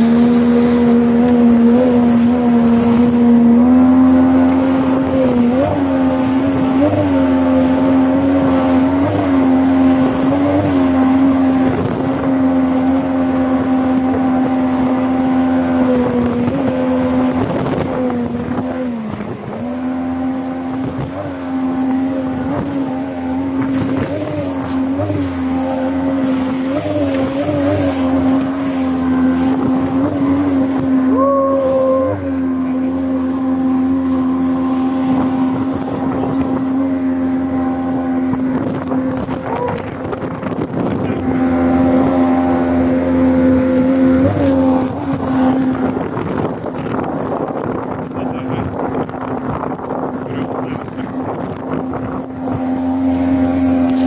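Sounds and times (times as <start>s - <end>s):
outboard motor running: 0.0s - 54.0s
water rushing along hull: 0.0s - 54.0s.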